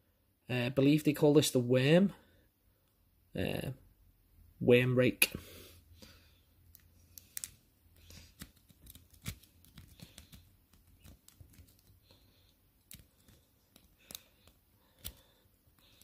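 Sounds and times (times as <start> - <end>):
lock pick clicking and scraping: 6.7 - 15.2.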